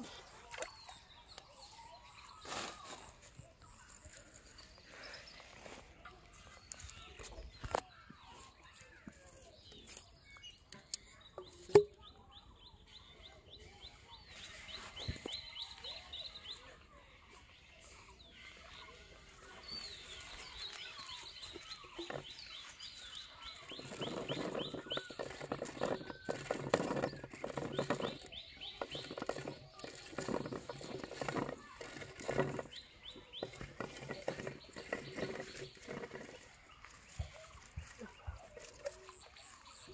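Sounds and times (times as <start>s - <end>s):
bird chirping trills: 0.0s - 39.9s
rustling scraping noise: 18.3s - 39.9s.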